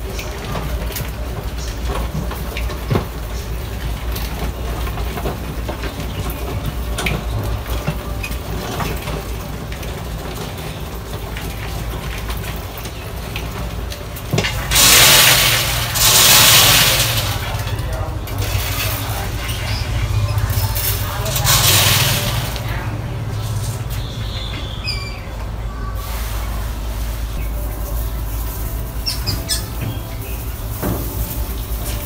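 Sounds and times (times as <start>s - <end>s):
mice claws scratching on glass: 27.4s - 32.0s.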